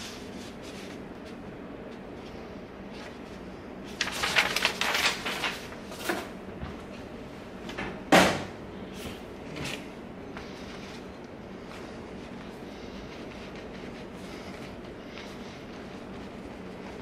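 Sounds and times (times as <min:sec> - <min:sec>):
paper rustling and crinkling: 0:00.0 - 0:07.0.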